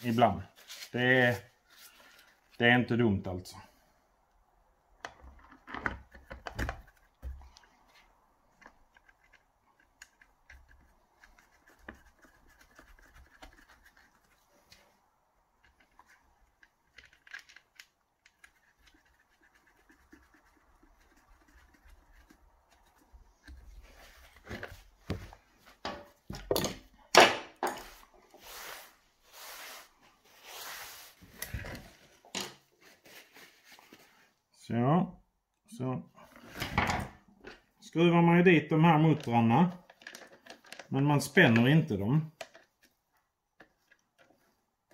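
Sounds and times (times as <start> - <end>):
faint scratching: 18.2 - 24.4
rag wiping a metal table: 27.8 - 31.3.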